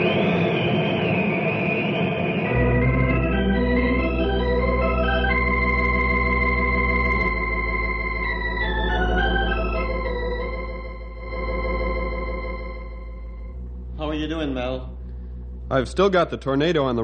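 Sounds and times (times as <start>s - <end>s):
organ chords: 0.0s - 17.0s.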